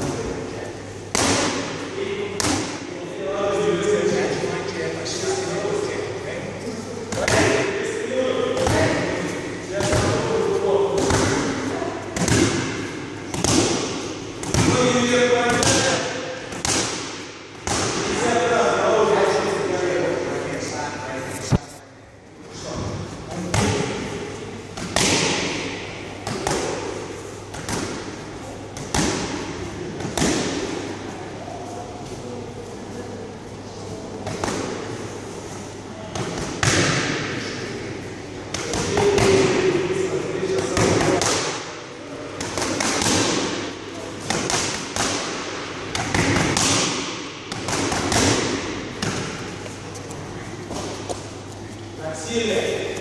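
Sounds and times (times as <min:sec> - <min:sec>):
boxing gloves hitting focus mitts: 0:15.5 - 0:18.2, 0:44.3 - 0:49.5.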